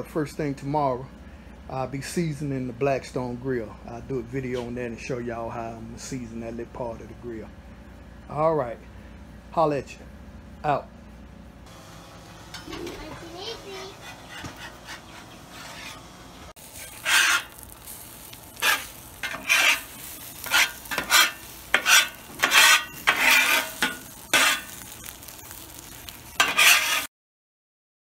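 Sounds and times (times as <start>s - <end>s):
eggs sizzling: 11.7s - 27.1s
spatula scraping a griddle: 12.5s - 27.1s.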